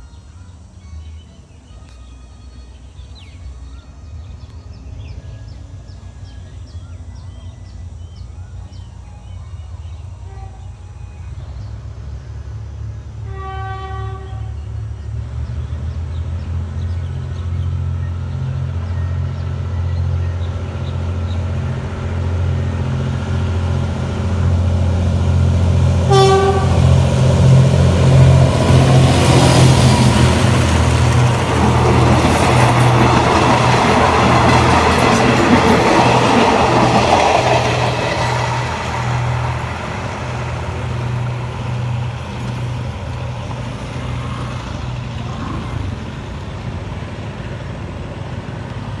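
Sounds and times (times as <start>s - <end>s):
diesel locomotive engine: 0.0s - 49.0s
train wheel and rail noise: 0.0s - 49.0s
train horn blast: 10.2s - 11.2s, 13.2s - 14.9s, 25.3s - 29.4s.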